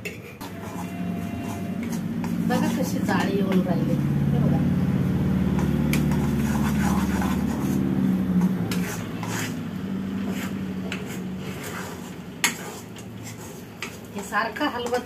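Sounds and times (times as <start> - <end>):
spatula scraping metal pan: 0.0 - 3.9, 5.3 - 15.0
low hum: 0.4 - 12.4.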